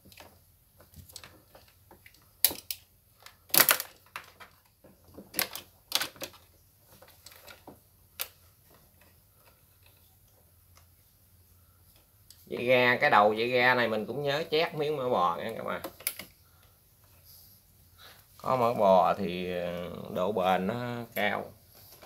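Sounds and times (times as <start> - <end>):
metal and plastic clicks: 0.9 - 4.6, 15.5 - 16.4.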